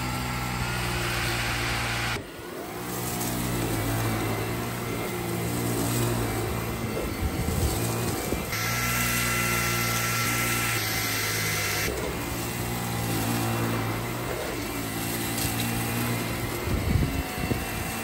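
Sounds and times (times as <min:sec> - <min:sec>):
vacuum cleaner motor hum: 0:00.0 - 0:18.0.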